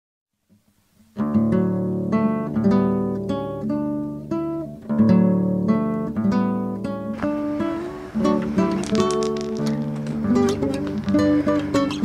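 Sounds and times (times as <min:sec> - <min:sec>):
acoustic guitar playing: 0:00.6 - 0:12.0.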